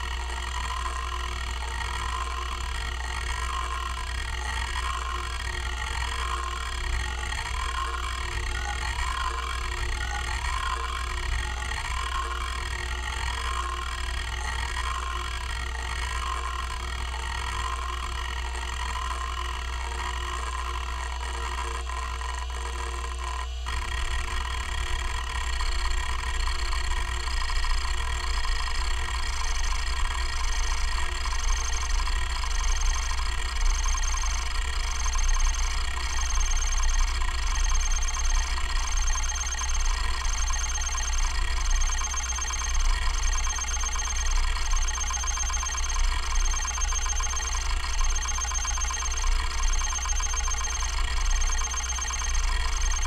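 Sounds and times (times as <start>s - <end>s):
spindle hum: 23.9s - 53.0s
hard drive stepper buzzing: 26.9s - 53.0s.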